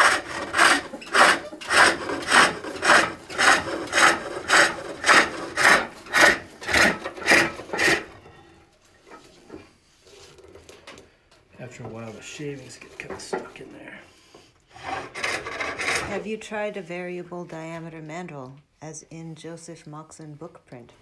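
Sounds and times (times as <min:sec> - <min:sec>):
hook tool rasping wood: 0:00.0 - 0:08.2, 0:14.8 - 0:16.2.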